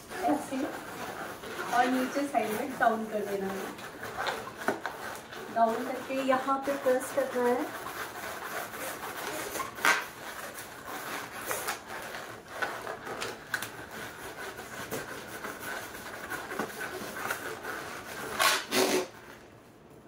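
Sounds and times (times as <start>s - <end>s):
rubber balloon rubbing on wall: 0.0s - 19.4s.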